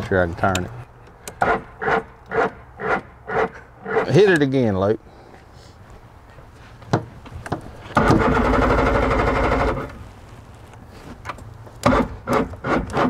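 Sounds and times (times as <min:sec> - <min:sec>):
outboard motor starter cranking: 0:01.3 - 0:04.2, 0:07.9 - 0:10.0, 0:11.8 - 0:13.0.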